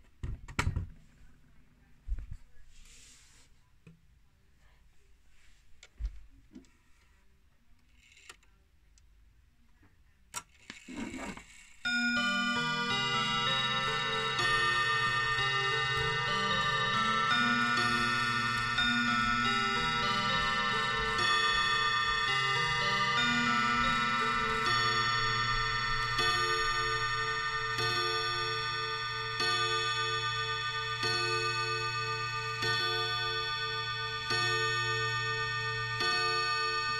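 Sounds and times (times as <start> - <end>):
clock striking on chime rods: 11.8 - 36.9.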